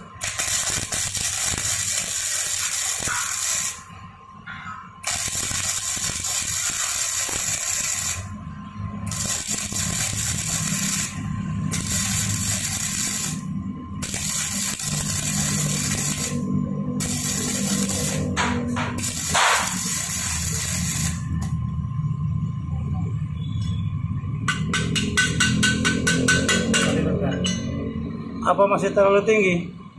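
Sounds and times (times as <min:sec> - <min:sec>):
welder arcing crackling sizzle: 0:00.0 - 0:03.9, 0:05.0 - 0:08.4, 0:09.0 - 0:21.6.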